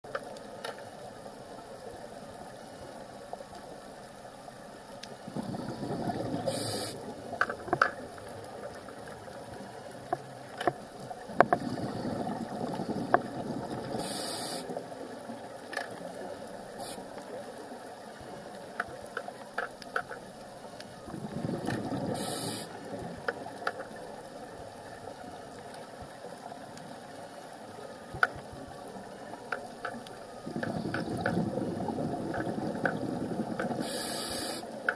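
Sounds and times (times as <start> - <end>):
exhaled bubbles rushing: 5.2 - 7.4, 11.2 - 14.2, 21.0 - 23.3, 30.4 - 34.0
scuba regulator breathing underwater: 5.3 - 7.2, 11.5 - 14.8, 21.1 - 23.0, 30.4 - 34.8.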